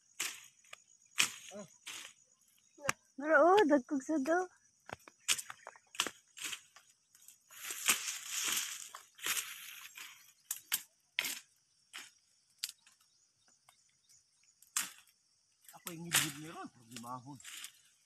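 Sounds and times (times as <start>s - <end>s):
twigs snapping: 4.8s - 13.0s, 14.6s - 15.1s, 15.7s - 16.4s
brush rustling: 5.2s - 12.2s, 15.8s - 18.0s.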